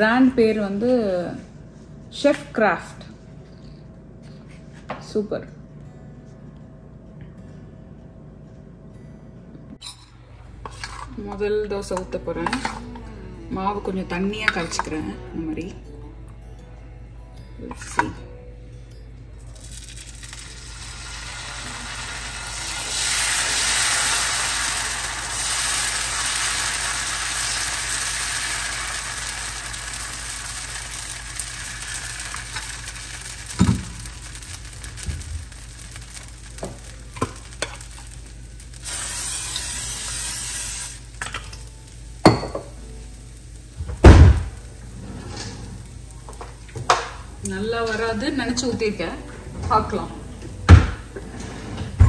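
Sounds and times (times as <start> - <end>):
batter sizzling on hot pan: 19.5 - 49.0.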